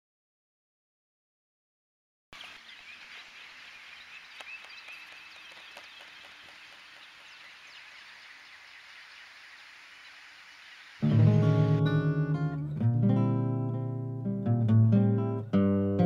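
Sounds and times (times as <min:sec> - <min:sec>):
small birds chirping: 0:02.4 - 0:11.1
low steady hiss: 0:02.4 - 0:12.2
faint clicks: 0:04.2 - 0:07.2.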